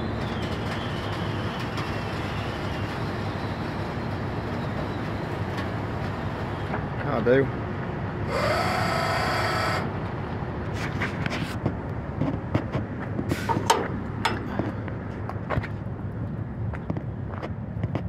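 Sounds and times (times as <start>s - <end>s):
truck engine idling: 7.6s - 10.3s
light metallic clicks and knocks: 13.5s - 14.7s.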